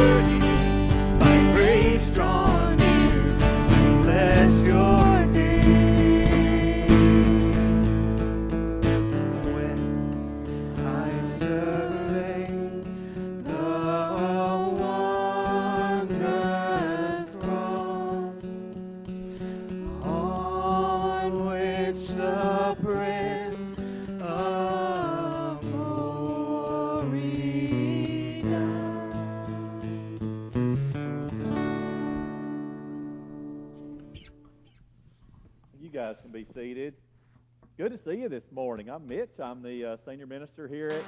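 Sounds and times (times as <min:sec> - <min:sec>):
people singing with vibrato: 0:00.0 - 0:08.2, 0:10.5 - 0:30.3
acoustic guitar: 0:00.0 - 0:35.7.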